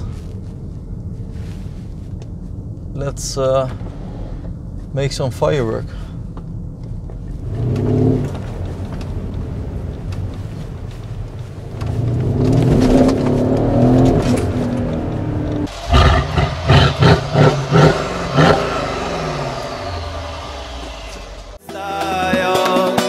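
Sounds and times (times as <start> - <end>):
car engine accelerating: 5.9 - 21.6
engine throttle blips: 5.9 - 21.6.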